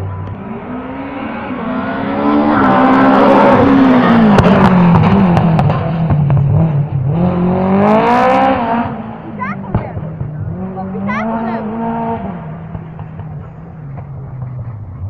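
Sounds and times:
rally car engine passing: 0.0s - 15.0s.

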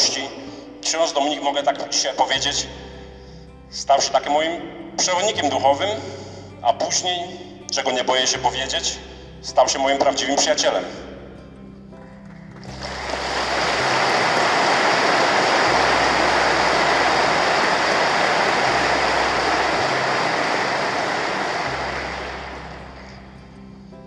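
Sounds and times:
audience applauding: 12.2s - 23.4s.

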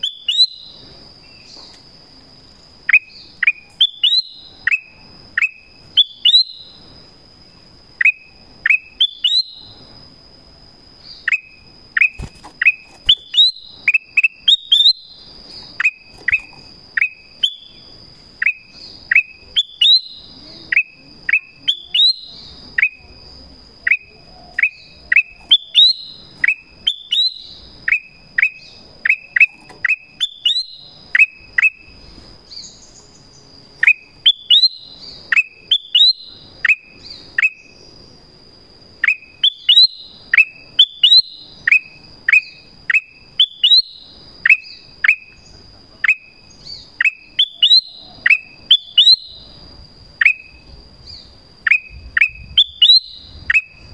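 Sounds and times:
bird calling: 0.0s - 1.8s, 2.8s - 6.9s, 11.0s - 17.8s, 23.8s - 37.8s, 50.2s - 53.9s.

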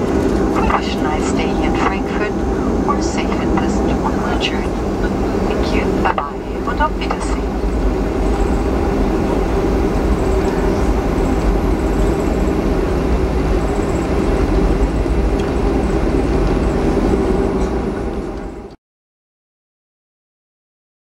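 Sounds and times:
airplane cabin engine rumble: 0.0s - 18.8s.

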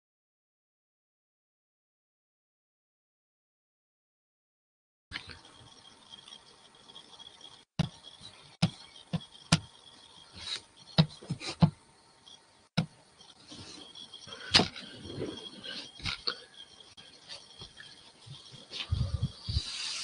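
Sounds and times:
irregular knocks and clicks: 7.8s - 9.8s, 10.9s - 11.8s.

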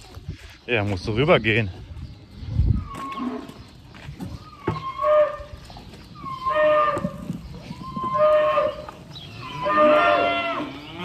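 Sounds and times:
cattle mooing: 8.0s - 11.0s.

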